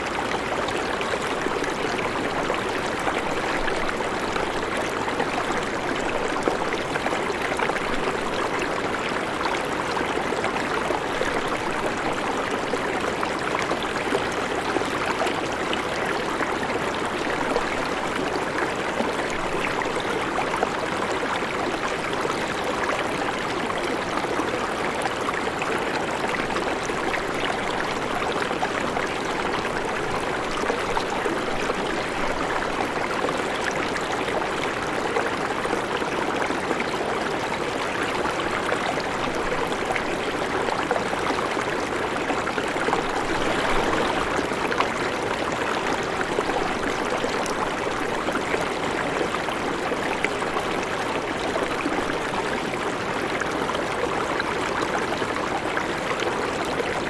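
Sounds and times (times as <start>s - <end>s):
river water rushing: 42.2s - 48.3s.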